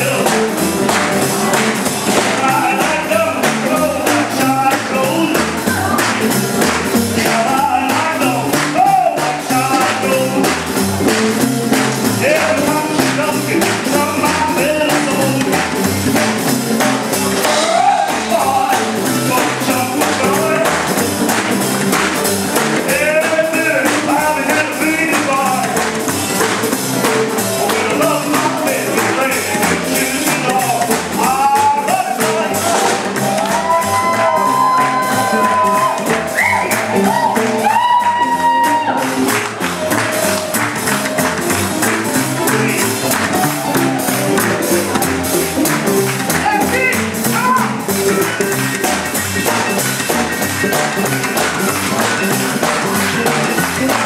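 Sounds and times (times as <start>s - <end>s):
man singing: 0.0s - 0.7s, 2.0s - 6.3s, 6.9s - 11.1s, 12.0s - 16.2s, 17.0s - 21.3s, 22.5s - 26.0s, 26.9s - 33.3s, 41.8s - 44.9s, 46.2s - 49.2s
live boogie-woogie band: 0.0s - 54.0s.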